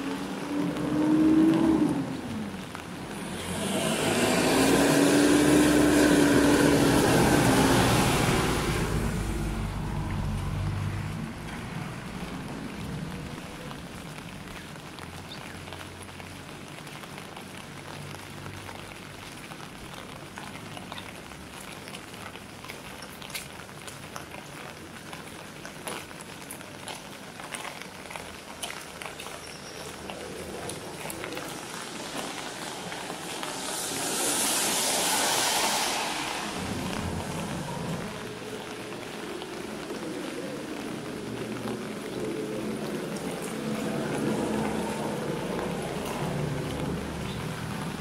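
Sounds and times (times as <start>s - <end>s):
rain falling on wet ground: 0.0s - 48.0s
sharp drips: 0.0s - 48.0s
rushing hiss: 31.5s - 38.5s.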